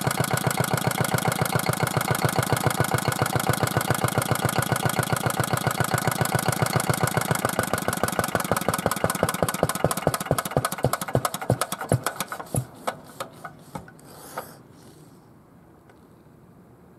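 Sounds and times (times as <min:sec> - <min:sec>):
diesel engine running down: 0:00.0 - 0:11.4
short hiss: 0:11.8 - 0:15.3.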